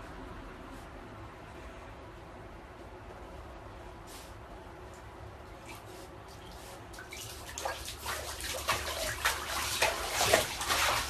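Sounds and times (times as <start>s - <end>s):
bathtub water splashing: 5.6s - 11.0s.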